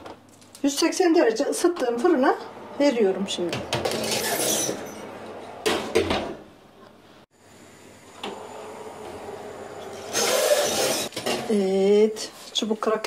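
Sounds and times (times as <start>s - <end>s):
oven door scraping open: 2.8s - 5.8s.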